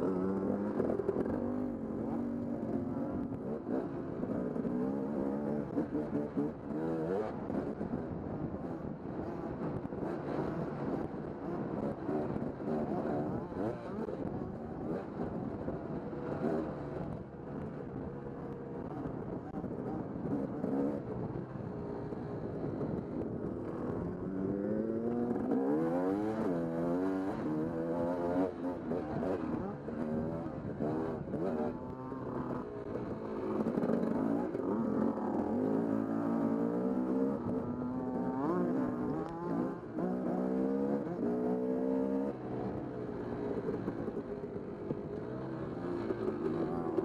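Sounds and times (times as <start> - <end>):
dirt bike engine revving: 23.6 - 42.4.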